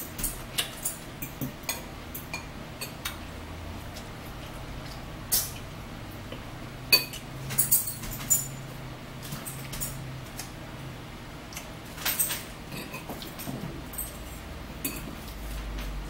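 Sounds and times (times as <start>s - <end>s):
forks clinking on ceramic plates: 12.1s - 15.3s.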